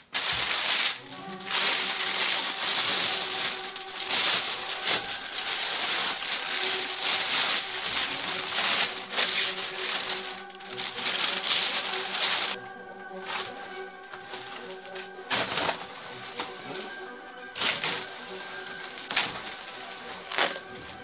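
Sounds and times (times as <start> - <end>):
background music with held notes: 0.0 - 21.0
plastic film crinkling: 0.0 - 21.0.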